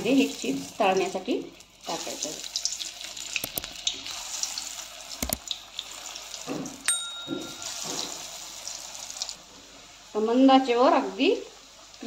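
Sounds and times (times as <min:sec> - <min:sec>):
deep-frying in hot oil: 0:00.0 - 0:12.0
short ringing ping: 0:06.9 - 0:08.3.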